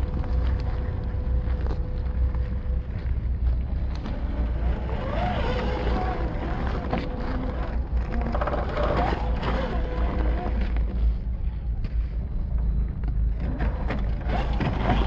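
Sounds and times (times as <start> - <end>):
electric motor and gearbox whining: 0.0 - 11.3, 12.2 - 15.0
low rumble: 0.0 - 15.0
stones clicking under tyres: 0.0 - 15.0.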